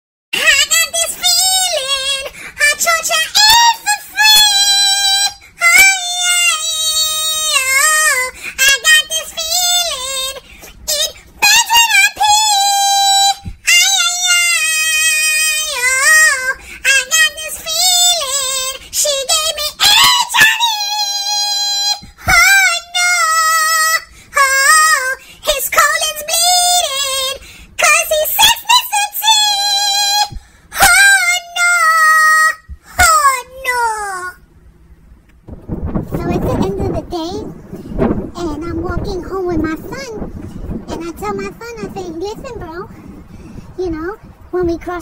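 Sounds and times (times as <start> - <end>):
pitched-up male singing voice: 2.7 - 27.1.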